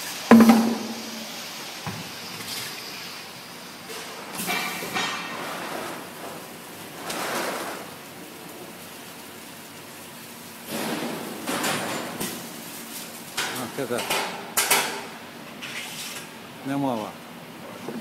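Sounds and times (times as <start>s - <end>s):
machine clunks: 0.3s - 1.4s.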